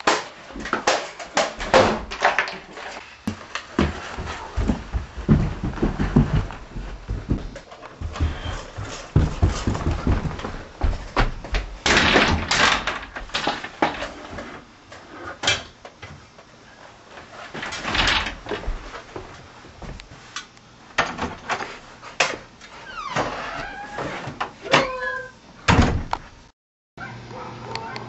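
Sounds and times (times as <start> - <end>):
door opening: 22.8 - 26.2.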